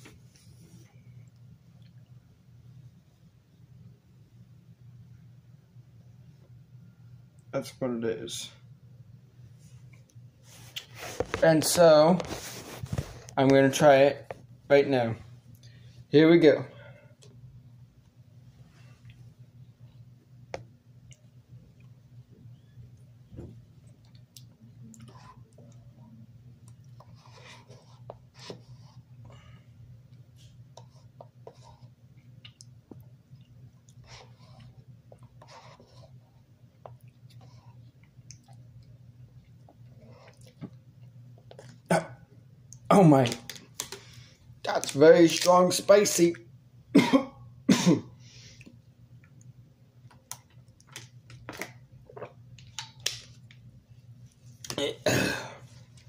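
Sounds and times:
steady low hum: 0.0s - 56.0s
chewing and mouth noises: 32.2s - 35.4s, 36.7s - 41.9s.

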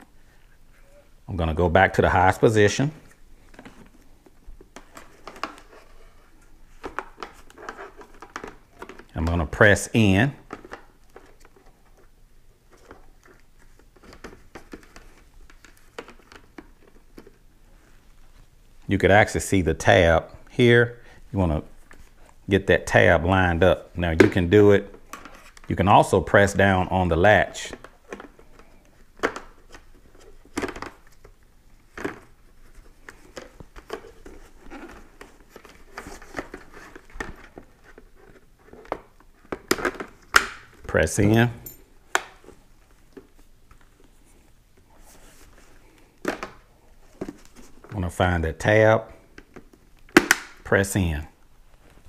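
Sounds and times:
plastic rubbing and scraping: 29.5s - 40.2s.

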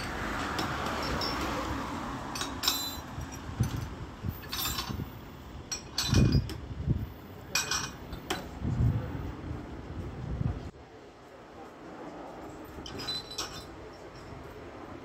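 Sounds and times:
wind buffeting the microphone: 3.0s - 10.8s.

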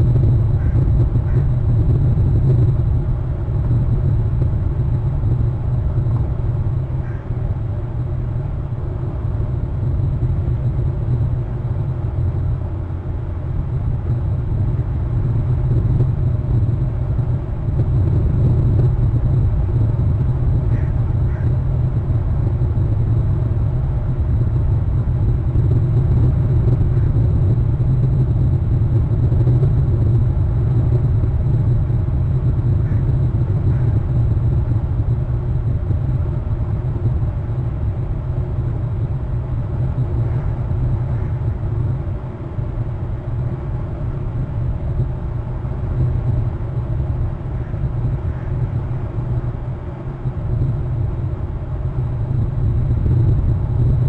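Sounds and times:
wind rumbling on microphone: 0.0s - 54.0s.

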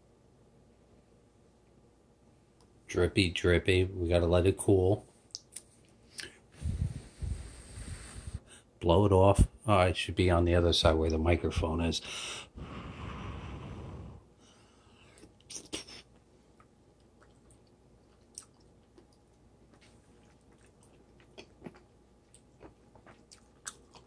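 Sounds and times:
person blowing on food: 6.6s - 8.5s, 12.5s - 14.3s
person chewing quietly: 15.1s - 24.0s.

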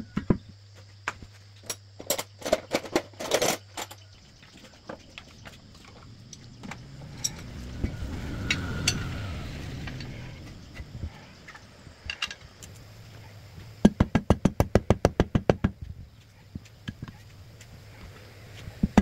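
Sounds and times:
metal tools clinking and knocking: 1.6s - 7.6s, 11.4s - 12.8s
low rumble: 5.3s - 13.7s.

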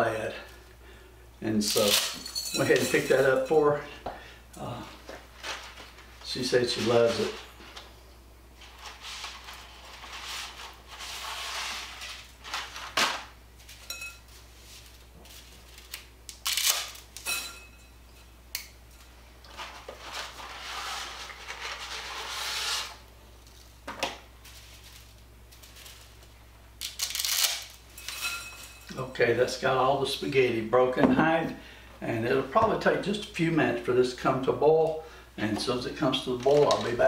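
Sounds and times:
pasta rustling and clattering: 5.0s - 7.9s, 8.6s - 16.1s, 19.0s - 22.7s, 23.4s - 29.0s.

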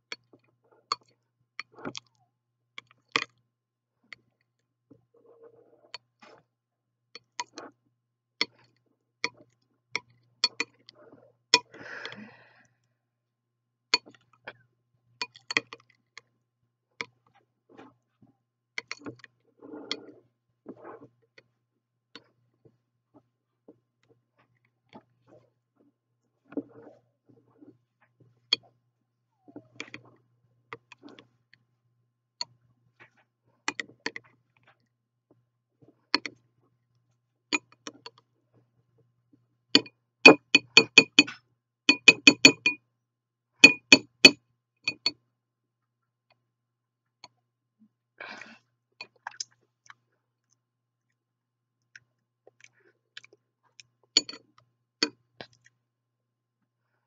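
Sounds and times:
metal spoon clinking on glass bowl: 39.8s - 41.3s, 41.9s - 42.8s, 43.6s - 45.1s, 54.2s - 54.4s.

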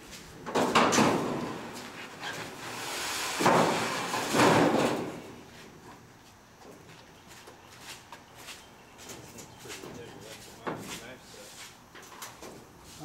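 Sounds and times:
sheet metal banging and scraping: 0.4s - 5.4s.

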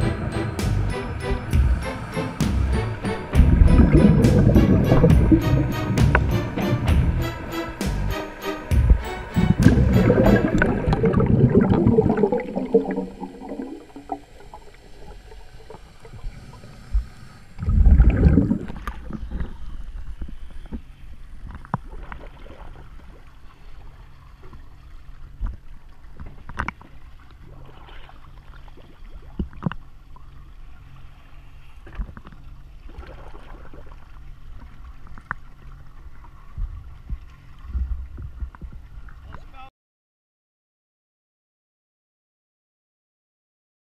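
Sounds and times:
loud water splash: 0.0s - 6.5s, 8.7s - 14.3s, 17.6s - 19.1s
water sloshing and lapping: 8.8s - 39.5s.

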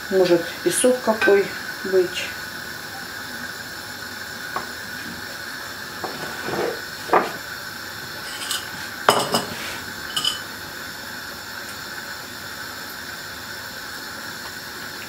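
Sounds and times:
kitchenware clinking and clattering: 8.2s - 10.5s.

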